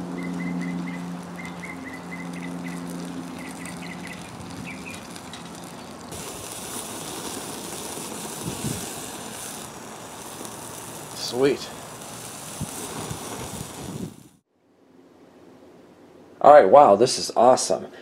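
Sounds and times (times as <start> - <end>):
birds chirping: 0.0 - 6.3
patty sizzling on a grill: 0.0 - 14.4
steady low hum: 0.0 - 16.4.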